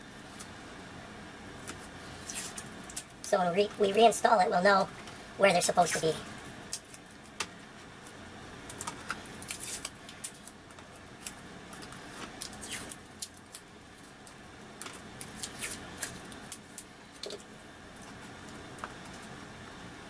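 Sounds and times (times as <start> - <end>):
masking tape ripping: 2.2 - 3.1, 9.4 - 10.4, 12.4 - 13.6, 15.2 - 16.8.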